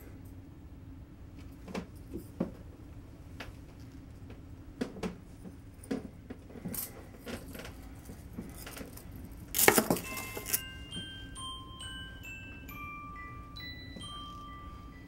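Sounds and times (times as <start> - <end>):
small clinks and knocks: 5.8 - 10.7.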